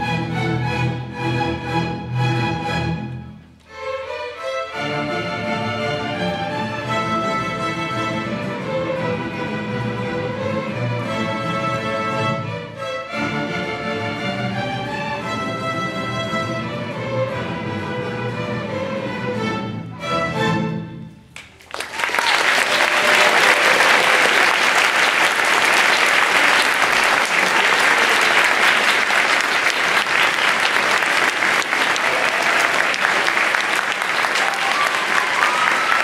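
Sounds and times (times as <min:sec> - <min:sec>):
string orchestra playing chords: 0:00.0 - 0:21.4, 0:22.6 - 0:34.6
audience applause: 0:21.4 - 0:36.0.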